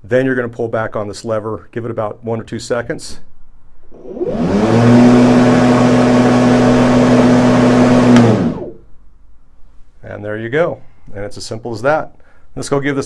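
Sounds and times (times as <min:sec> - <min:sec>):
electric lawn mower whirring: 0:04.0 - 0:08.8.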